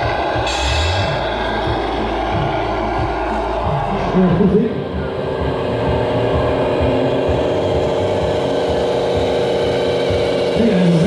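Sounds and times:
model truck motor humming: 0.0s - 11.0s.

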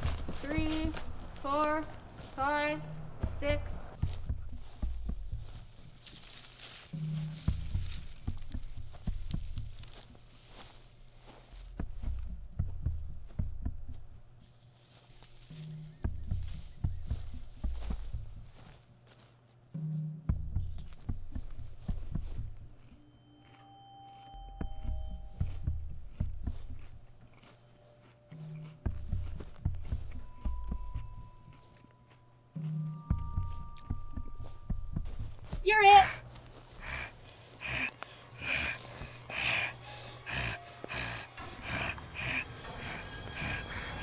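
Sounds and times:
low pulsing thuds: 0.0s - 6.1s, 7.0s - 10.2s, 11.6s - 14.4s, 15.6s - 18.7s, 20.1s - 22.8s, 24.6s - 27.2s, 28.8s - 31.4s, 32.8s - 40.3s
person panting raspily: 35.1s - 44.0s.

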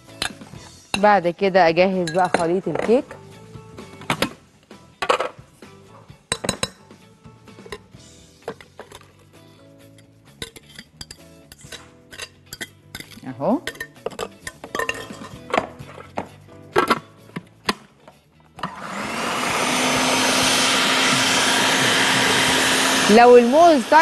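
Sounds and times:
kitchen utensils clinking: 1.8s - 3.1s, 10.3s - 16.2s
electric kitchen mixer running: 18.6s - 24.0s.

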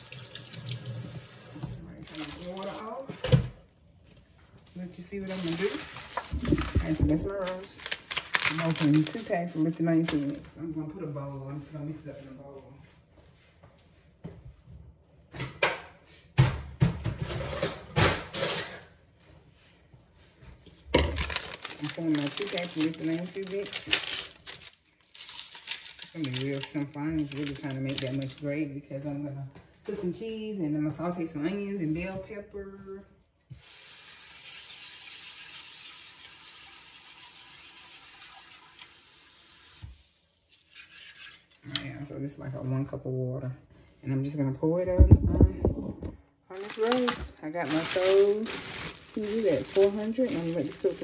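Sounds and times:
kitchen tap running: 0.0s - 2.8s, 33.5s - 40.0s
packets crinkling: 2.0s - 3.0s, 5.2s - 10.5s, 21.0s - 28.5s, 46.5s - 51.0s.

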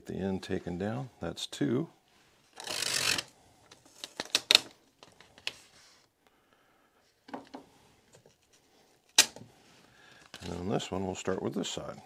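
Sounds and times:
tape rustling: 2.5s - 6.1s.

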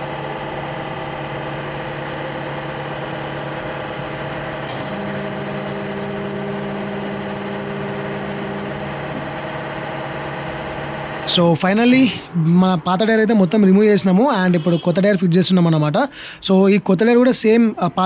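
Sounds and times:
electric motor humming: 0.0s - 13.7s.

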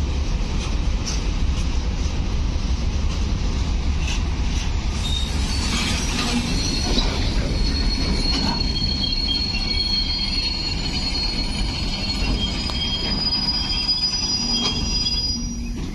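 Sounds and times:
train wheels rumbling on rails: 0.0s - 15.9s
high-pitched wheel squeal: 5.0s - 15.9s.

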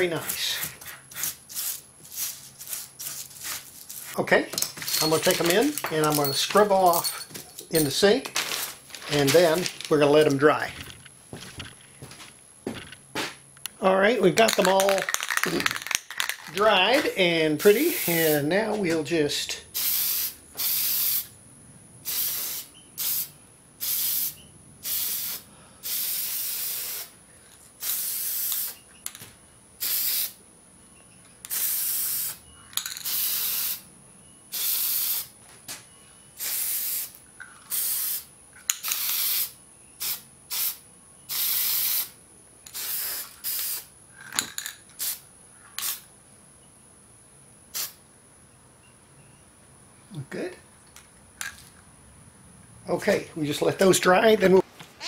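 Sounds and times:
spray can hissing bursts: 0.2s - 4.1s, 17.6s - 18.5s, 19.7s - 21.3s, 22.0s - 27.2s, 27.8s - 28.8s, 29.8s - 30.4s, 31.4s - 32.4s, 33.0s - 33.8s, 34.5s - 35.3s, 36.4s - 42.1s, 42.7s - 43.9s, 45.0s - 45.2s, 45.8s - 46.0s, 47.7s - 48.0s.

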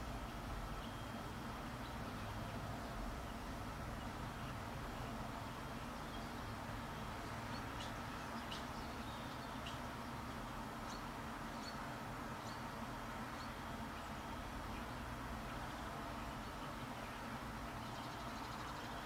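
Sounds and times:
low rumble and hiss: 0.0s - 19.0s
high-pitched songbird calls: 7.4s - 9.8s, 13.4s - 19.0s.

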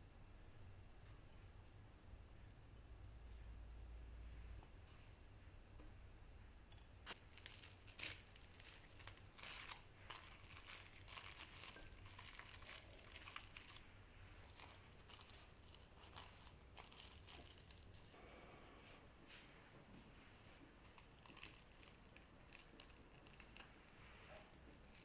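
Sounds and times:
plastic cling wrap crinkling: 7.1s - 18.2s, 20.8s - 25.0s.

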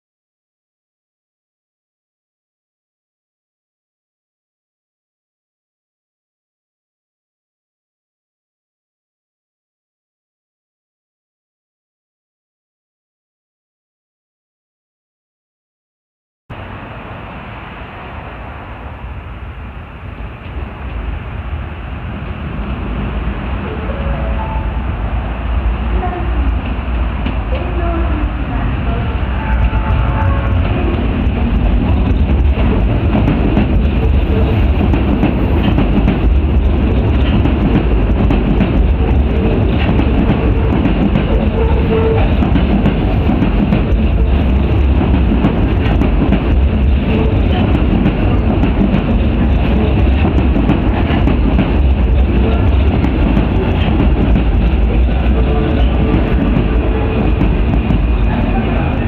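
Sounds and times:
electric train rumbling on rails: 16.5s - 59.0s.

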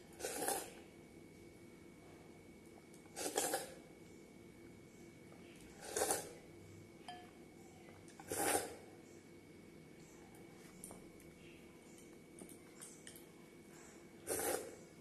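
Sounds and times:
glass bowl clink: 7.0s - 7.4s.

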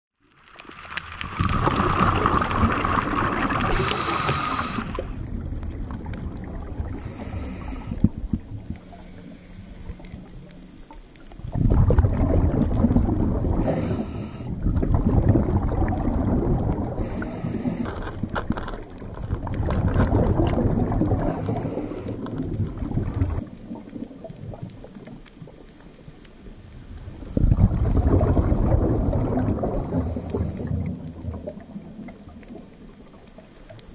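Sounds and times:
underwater bubbles gurgling: 0.2s - 33.9s
short hisses: 3.7s - 5.1s, 7.0s - 8.0s, 13.6s - 14.5s, 17.0s - 17.9s.

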